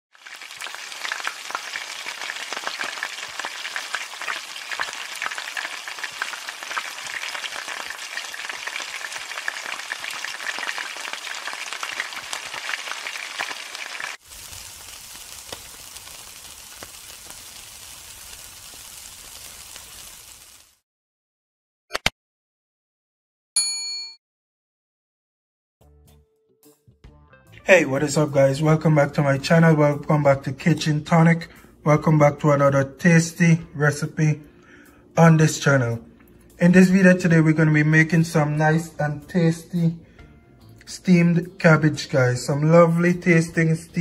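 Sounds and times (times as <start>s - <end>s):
food frying in hot oil: 0.1s - 20.8s
meat sizzling on charcoal grill: 0.1s - 20.8s.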